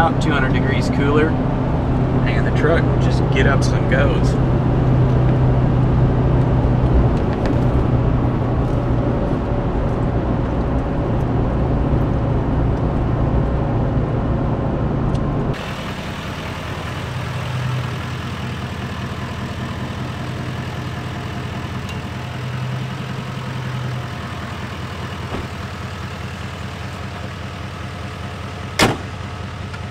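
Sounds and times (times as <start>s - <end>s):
diesel engine and road noise: 0.0s - 29.9s
diesel truck idling: 0.0s - 29.9s.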